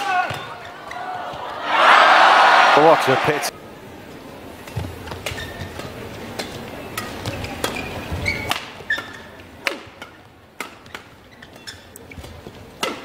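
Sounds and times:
crowd murmur: 0.0s - 4.7s
rackets hitting shuttlecock: 4.7s - 13.0s
shoe squeaks on court: 5.3s - 5.8s, 7.2s - 9.3s, 11.2s - 12.3s.

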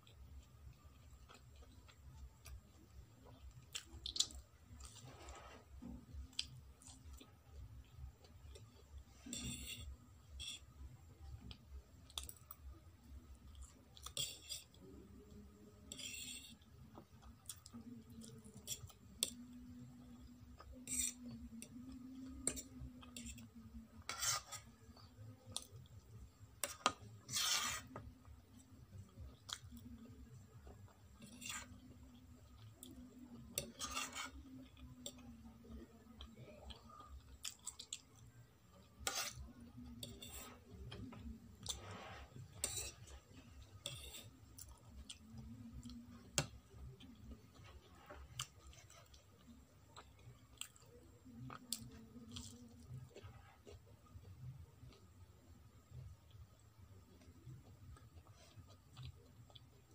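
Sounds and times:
soft chewing: 0.0s - 59.9s
fork scraping a ceramic plate: 9.2s - 10.7s, 15.9s - 16.6s, 20.8s - 21.4s, 24.0s - 24.7s, 26.6s - 28.0s, 31.2s - 31.8s, 33.6s - 34.4s, 39.0s - 40.6s, 41.7s - 43.1s, 43.8s - 44.3s.

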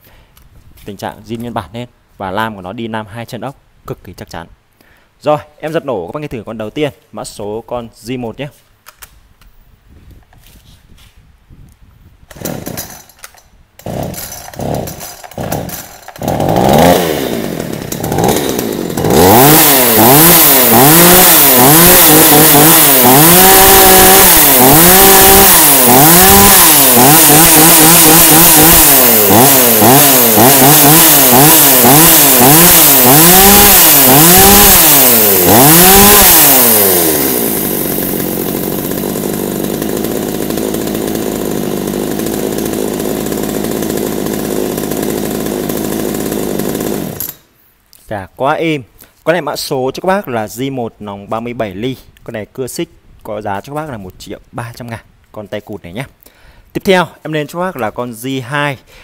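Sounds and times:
starter cord pulls: 12.3s - 35.0s, 46.0s - 47.4s
chainsaw engine revving and idling: 12.3s - 47.5s.

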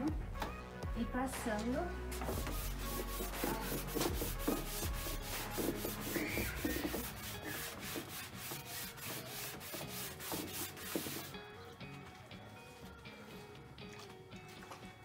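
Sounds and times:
sponge scrubbing wood panel: 2.2s - 11.3s.

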